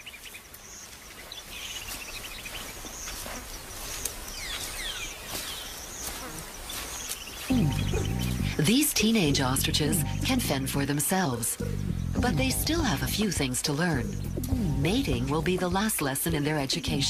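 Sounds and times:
insects buzzing: 0.0s - 16.2s
small birds chirping: 0.0s - 17.0s
low steady music: 7.5s - 17.0s.

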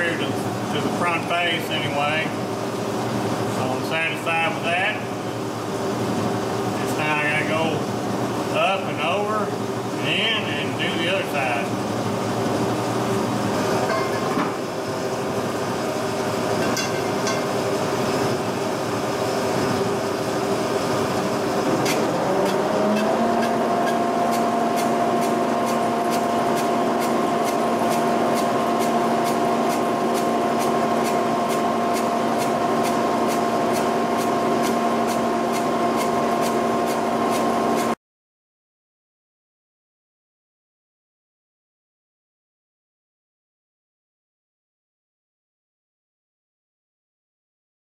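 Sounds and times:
boring mill whirring: 0.0s - 38.0s.

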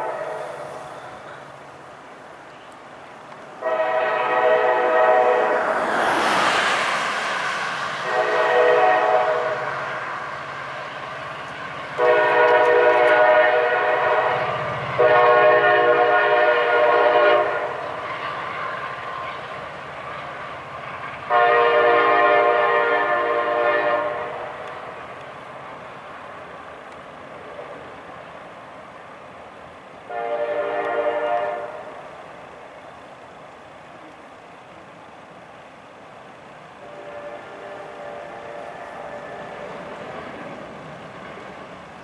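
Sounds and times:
locomotive air horn blasts: 0.0s - 0.7s, 3.6s - 5.7s, 8.0s - 9.8s, 12.0s - 17.8s, 21.3s - 24.5s, 30.1s - 31.9s, 36.8s - 39.7s.

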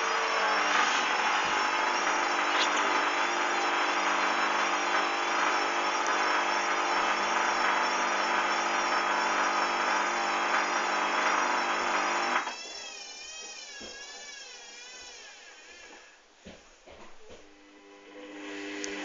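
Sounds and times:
washing machine drum spinning: 0.0s - 12.4s
motor whine: 0.0s - 16.2s, 17.6s - 19.0s.

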